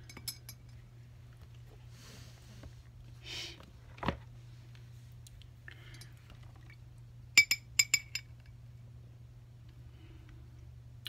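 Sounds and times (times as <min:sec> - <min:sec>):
brush clinking glass jar: 0:00.0 - 0:00.8, 0:07.4 - 0:08.3.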